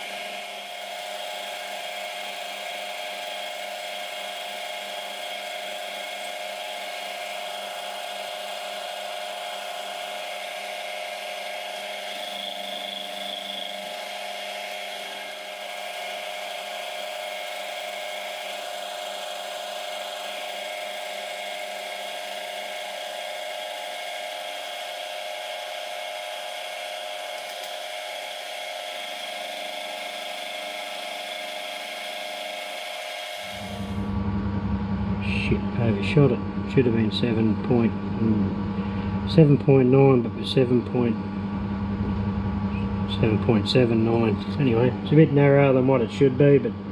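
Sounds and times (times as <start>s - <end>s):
milling machine cutting steel: 0.0s - 34.0s.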